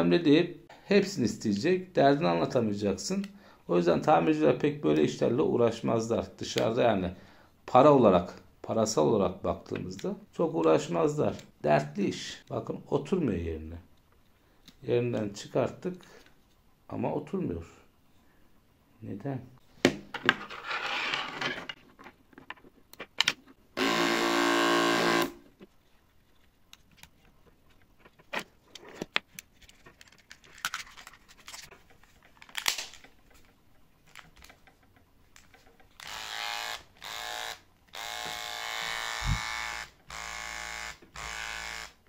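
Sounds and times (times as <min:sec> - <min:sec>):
electric trimmer motor buzzing: 0:23.8 - 0:25.4, 0:36.0 - 0:42.0.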